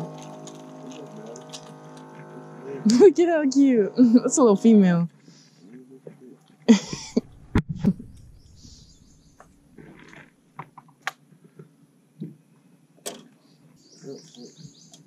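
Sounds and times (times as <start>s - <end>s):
low thumps: 7.0s - 9.8s.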